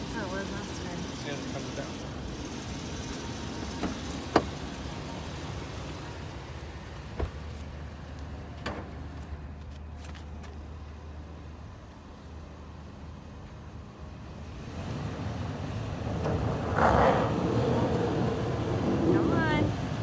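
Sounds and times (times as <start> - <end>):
car engine idling: 0.0 - 14.5.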